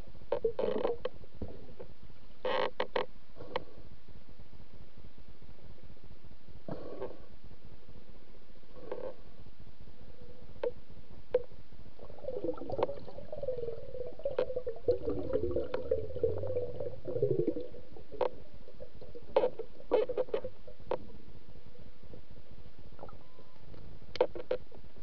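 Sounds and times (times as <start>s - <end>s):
faint underwater hum: 3.1s - 25.0s
sharp clicks underwater: 10.6s - 11.5s, 12.4s - 21.2s, 23.0s - 24.8s.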